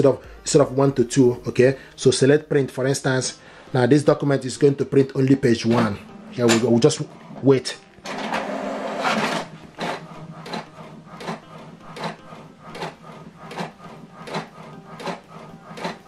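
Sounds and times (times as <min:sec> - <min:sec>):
print head carriage sweeping: 0:05.4 - 0:16.0
printer paper feed whir: 0:08.0 - 0:16.0.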